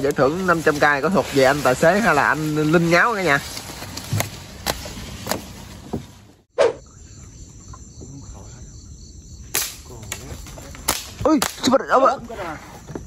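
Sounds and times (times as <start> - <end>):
insects chirring: 0.0 - 5.7, 6.5 - 13.0
palm fronds rustling: 0.0 - 6.5, 9.5 - 13.0
slingshot snap: 9.5 - 11.7.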